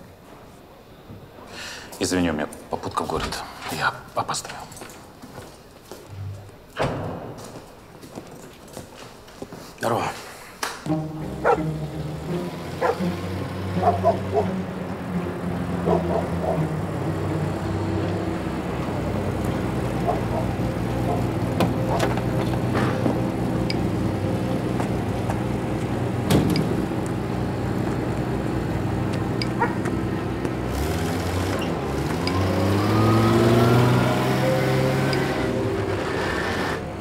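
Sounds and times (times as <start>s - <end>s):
truck engine revving: 10.9s - 37.0s
truck engine running: 10.9s - 37.0s
engine knocks: 11.2s - 33.6s.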